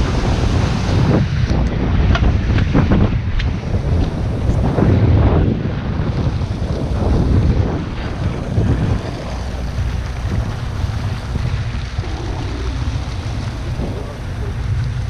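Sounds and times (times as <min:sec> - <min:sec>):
boat engine humming: 0:00.0 - 0:15.0
wind buffeting microphone: 0:00.0 - 0:15.0
water sloshing against boat hull: 0:06.2 - 0:15.0.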